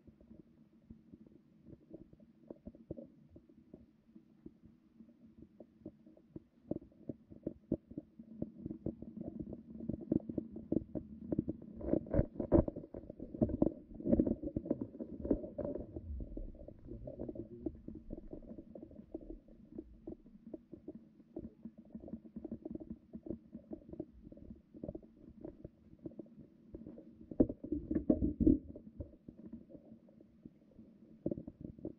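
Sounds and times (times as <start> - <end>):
muffled low knocking and rumbling: 12.2 - 20.3.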